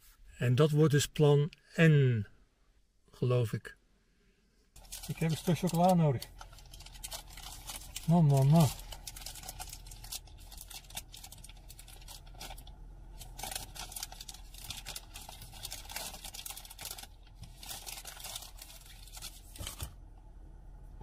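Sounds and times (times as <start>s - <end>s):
wrapper crinkling: 4.8s - 19.9s.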